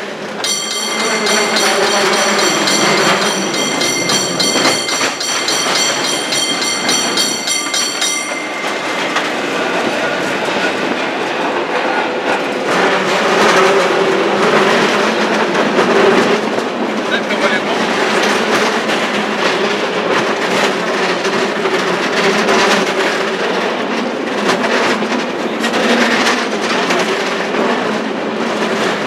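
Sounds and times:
cable car rumbling on track: 0.0s - 29.0s
rattles and clicks: 0.4s - 11.0s.

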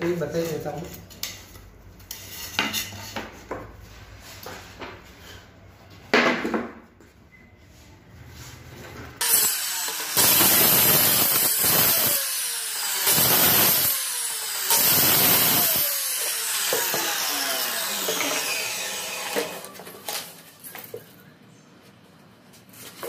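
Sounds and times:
circular saw cutting plywood: 9.2s - 20.2s.

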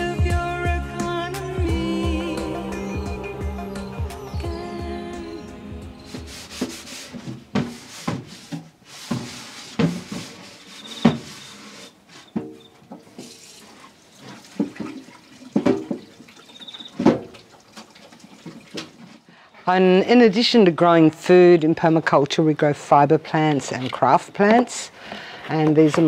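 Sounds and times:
hands scrubbing a gourd shell: 6.0s - 12.0s
water running from tap: 13.0s - 19.1s.

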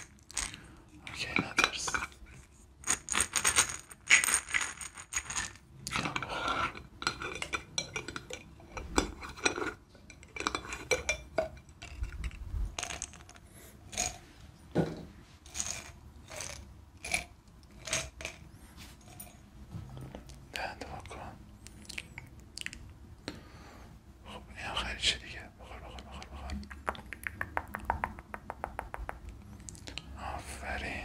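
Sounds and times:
pills rattling in a bottle: 2.8s - 6.2s, 15.4s - 18.4s.

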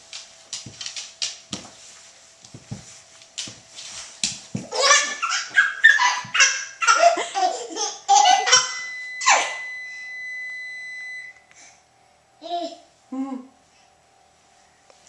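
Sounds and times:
baby laughing and giggling: 4.6s - 9.5s
steady high-pitched tone: 8.4s - 12.2s.

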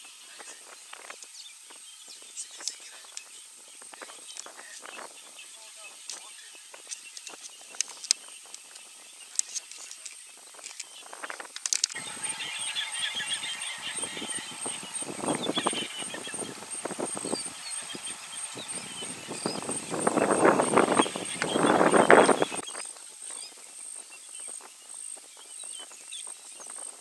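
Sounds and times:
steady high whine: 0.0s - 25.4s
chirping: 0.0s - 27.0s
twigs snapping: 6.1s - 12.0s.

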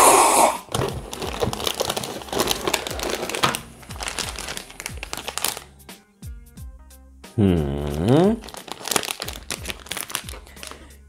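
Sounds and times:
plastic wrapper crinkling: 0.7s - 5.7s, 8.2s - 11.0s.

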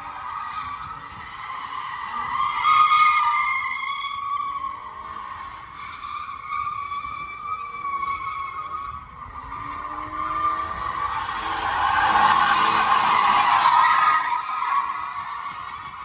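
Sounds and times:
car engine revving: 9.4s - 15.2s.

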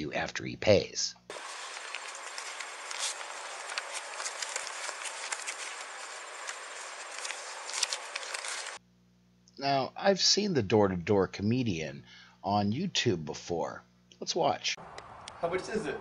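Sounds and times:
outdoor background hiss: 0.0s - 16.0s.

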